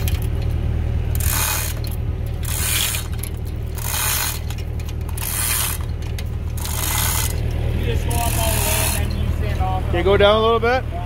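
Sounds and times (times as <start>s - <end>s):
tractor engine running: 0.0s - 11.0s
rasping metallic noise: 1.2s - 9.7s.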